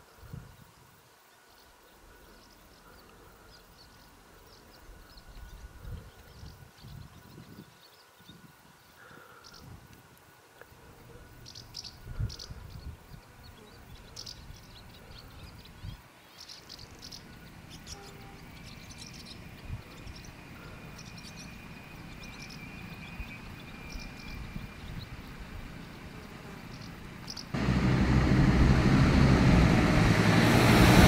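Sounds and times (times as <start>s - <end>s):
small birds chirping: 0.1s - 9.8s, 10.6s - 27.6s
low background rumble: 17.0s - 31.0s.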